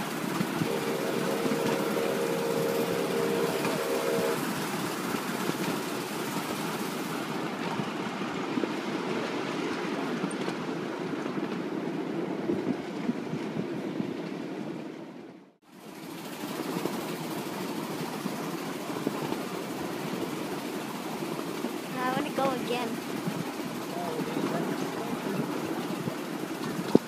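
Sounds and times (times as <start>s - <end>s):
locomotive whistle chord: 0.0s - 5.8s
miniature train rumbling on track: 0.0s - 15.0s, 15.6s - 27.0s.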